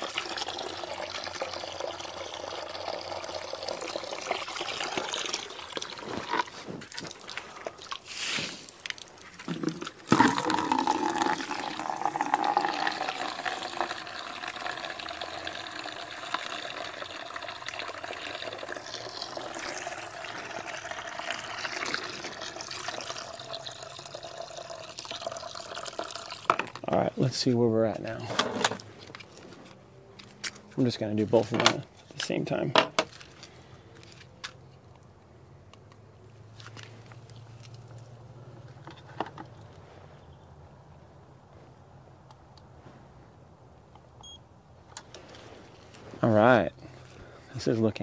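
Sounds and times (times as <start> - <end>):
hose water pouring into bucket: 0.0 - 26.8.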